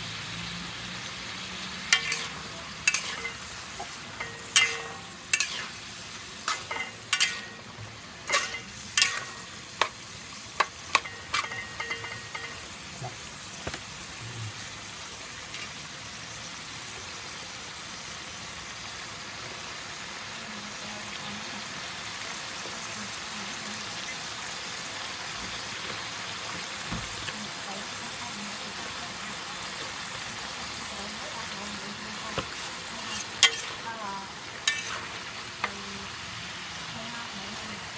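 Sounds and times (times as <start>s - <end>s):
food sizzling: 0.0s - 37.9s
spatula clanking against wok: 1.9s - 5.7s, 6.4s - 12.7s, 32.3s - 33.8s, 34.6s - 35.8s.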